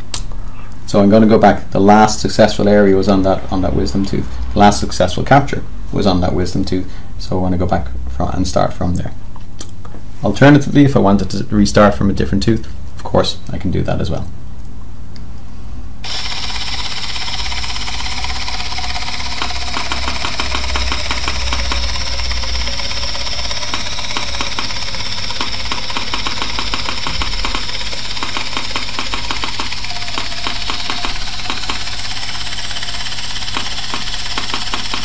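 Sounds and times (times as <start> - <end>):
scanner whirring: 1.0 - 8.7, 16.0 - 35.0.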